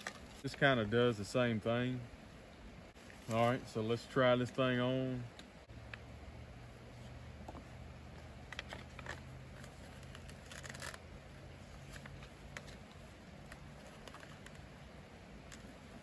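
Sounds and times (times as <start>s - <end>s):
helmet rustling and clicking: 6.9s - 16.0s
scraping rustle: 8.5s - 14.8s.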